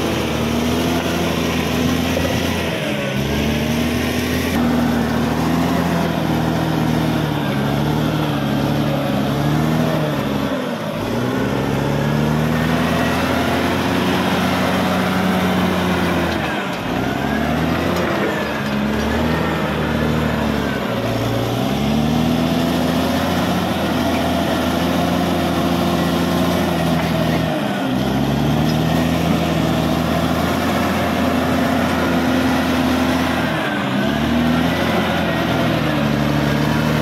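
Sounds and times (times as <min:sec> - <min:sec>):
blade pushing soil and rock: 0:00.0 - 0:37.0
bulldozer diesel engine under load: 0:00.0 - 0:37.0.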